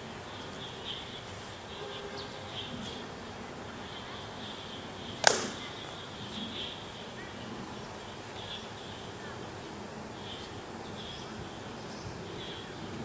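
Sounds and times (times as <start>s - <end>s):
steady outdoor hiss: 0.0s - 13.0s
sharp snap: 5.2s - 5.9s.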